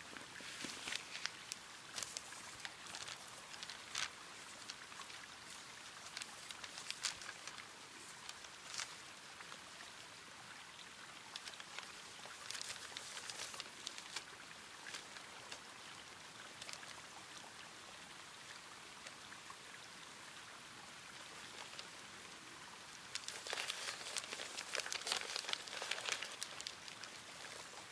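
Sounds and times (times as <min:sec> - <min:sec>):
paper map crackling: 0:00.0 - 0:09.1, 0:11.3 - 0:15.6, 0:21.3 - 0:22.0, 0:23.0 - 0:27.9.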